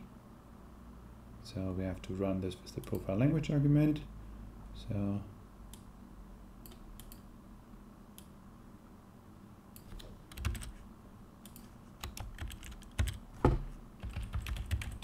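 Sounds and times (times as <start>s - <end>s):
typing on computer keyboard: 9.8s - 10.8s, 11.5s - 13.2s, 14.0s - 15.0s.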